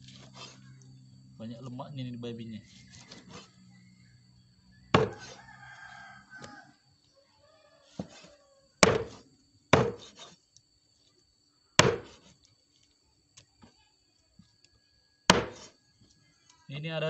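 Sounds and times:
rooster crowing: 2.7s - 9.0s
cleaver chopping meat on wood: 4.9s - 5.4s, 8.0s - 10.3s, 11.8s - 12.3s, 15.3s - 15.7s.

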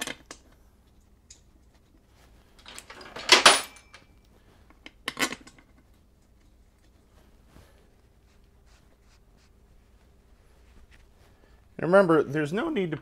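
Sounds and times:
metal bolts clinking: 2.6s - 4.1s.

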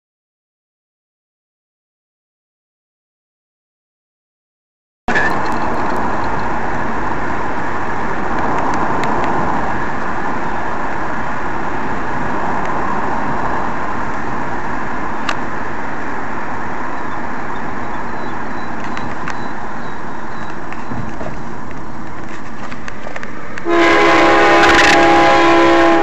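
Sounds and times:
faint clicks: 18.8s - 19.5s.

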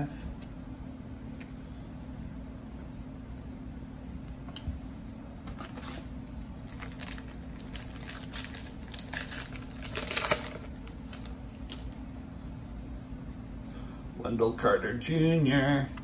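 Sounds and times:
foil wrapper crinkling and tearing: 5.7s - 12.0s.

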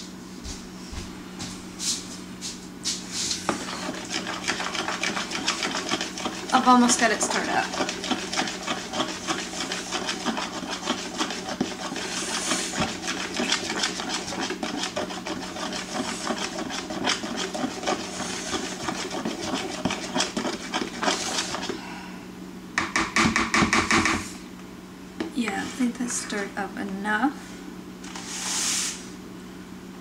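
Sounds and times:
utensil scraping batter bowl: 3.4s - 21.8s, 25.4s - 26.5s.

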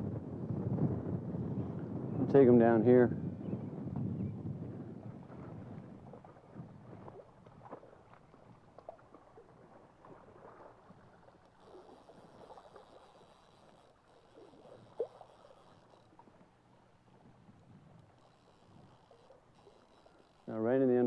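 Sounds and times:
creek water gurgling: 5.6s - 17.3s
small ticks and clicks: 11.4s - 16.8s, 17.5s - 21.0s.

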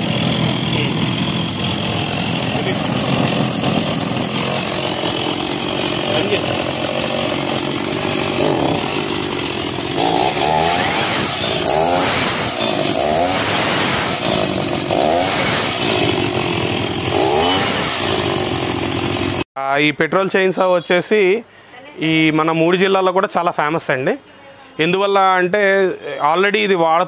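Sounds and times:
chainsaw revving: 0.0s - 19.5s.

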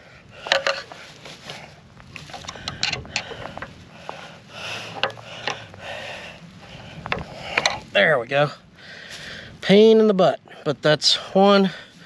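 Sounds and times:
screwdriver clicking and scraping: 0.4s - 1.0s, 2.2s - 3.7s, 4.9s - 5.6s.

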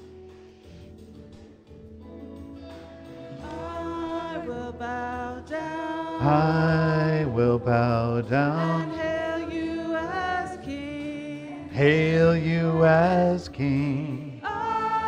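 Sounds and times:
musical accompaniment: 0.0s - 15.0s
person singing worship song: 3.3s - 15.0s.

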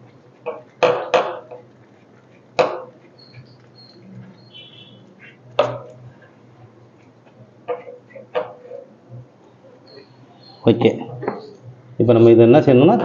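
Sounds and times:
sharp metal knocks and clicks: 0.4s - 1.7s, 5.6s - 6.0s.

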